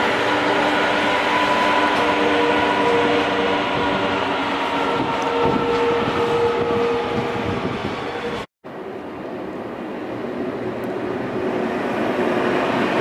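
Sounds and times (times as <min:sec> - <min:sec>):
whining tones: 0:00.0 - 0:08.5
train wagons rumbling: 0:00.0 - 0:13.0.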